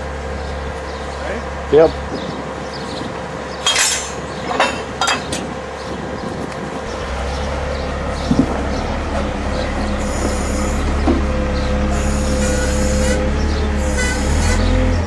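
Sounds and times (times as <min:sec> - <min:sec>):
wheel loader engine humming: 0:00.0 - 0:15.0.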